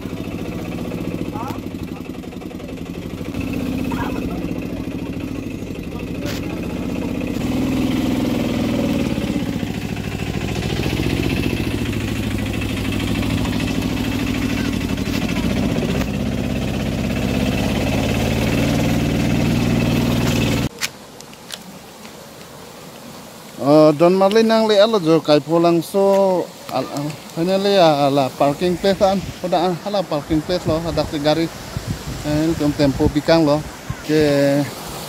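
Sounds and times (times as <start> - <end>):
small engine running under load: 0.0 - 20.7.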